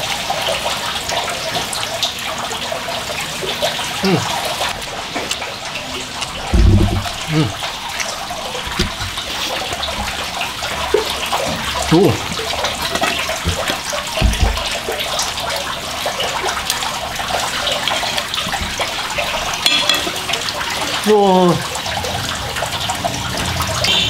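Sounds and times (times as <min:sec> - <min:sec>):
running water: 0:00.0 - 0:24.0
soft low thump: 0:06.5 - 0:07.5, 0:13.5 - 0:14.8.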